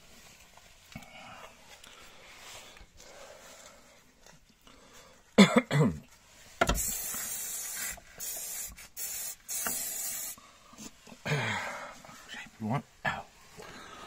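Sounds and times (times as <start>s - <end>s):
aerosol spray hissing: 6.6s - 10.4s.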